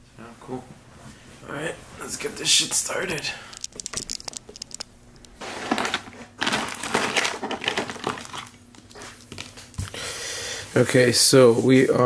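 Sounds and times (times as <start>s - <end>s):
quick clicks: 3.5s - 5.4s
pens rattling and paper rustling: 5.4s - 9.9s.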